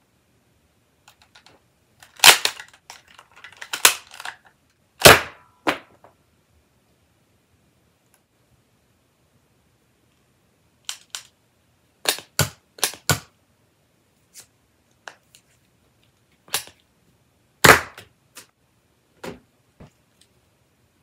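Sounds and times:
plastic toy pistol clicks and snaps: 1.1s - 4.4s, 10.8s - 11.3s, 12.0s - 13.3s, 16.5s - 16.8s.

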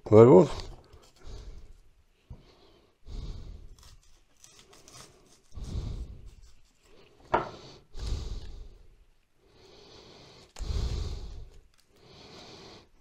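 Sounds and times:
knife cutting onion: 3.3s - 8.6s
onion layers pulled apart: 3.6s - 7.3s.

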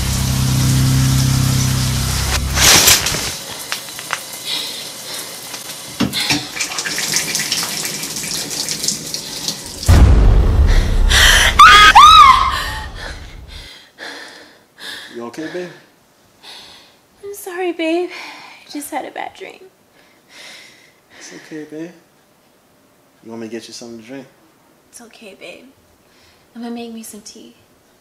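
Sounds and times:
loud low rumble: 0.0s - 2.7s, 9.9s - 11.6s, 12.5s - 13.6s
shower water running: 0.0s - 10.0s
woman screaming: 11.1s - 13.3s.

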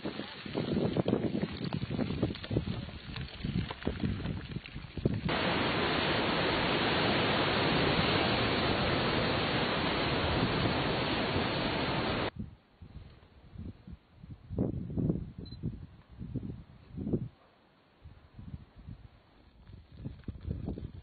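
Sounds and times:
surf and wind rushing: 5.3s - 12.3s.

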